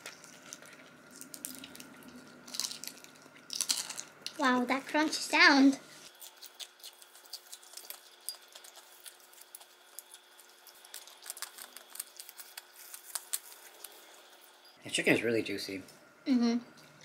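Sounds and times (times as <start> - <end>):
chewing fried chicken crunches: 0.0 - 4.3, 6.1 - 14.3.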